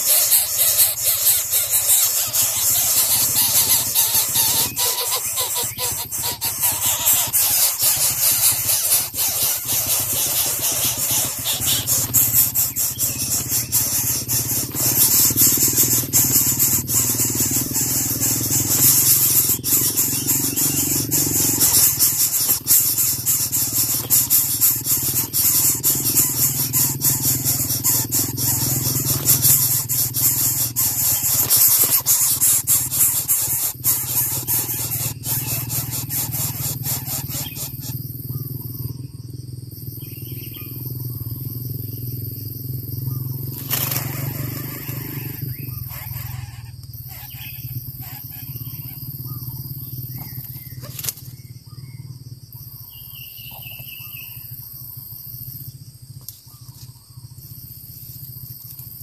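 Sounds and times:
nestlings begging squeal: 0:00.0 - 0:38.9, 0:43.0 - 0:51.1.

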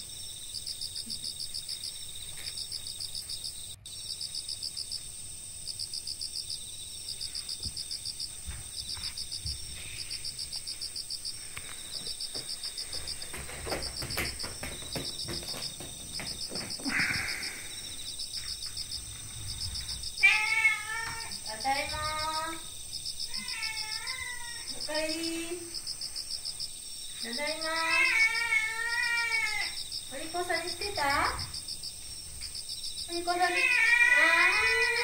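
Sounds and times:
crickets chirping: 0:00.0 - 0:35.0
soft knocks: 0:12.0 - 0:17.3.

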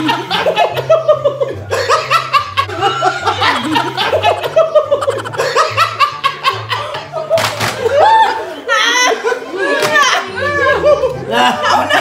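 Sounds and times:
background music with bass line: 0:00.0 - 0:08.3
people laughing: 0:00.0 - 0:12.0.

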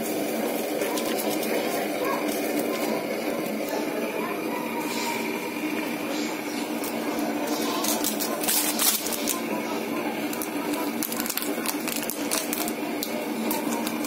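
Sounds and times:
steady background hum: 0:00.0 - 0:14.0
kitchen utensils clattering: 0:06.1 - 0:12.7.

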